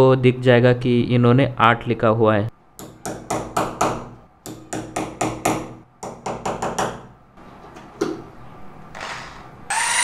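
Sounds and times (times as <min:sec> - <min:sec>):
electric drill whine: 0:09.7 - 0:10.0.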